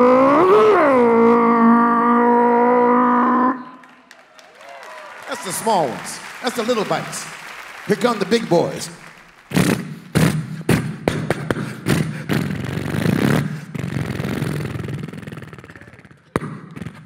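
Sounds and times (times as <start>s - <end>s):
man imitating motorcycle engines: 11.8s - 16.3s.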